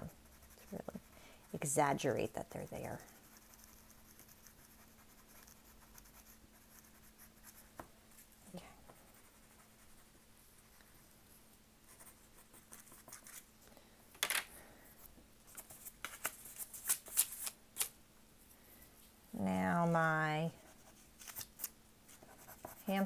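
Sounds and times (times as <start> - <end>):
pencil scratching on paper: 0.0 - 8.2, 9.0 - 11.0, 11.9 - 13.5, 22.1 - 23.0.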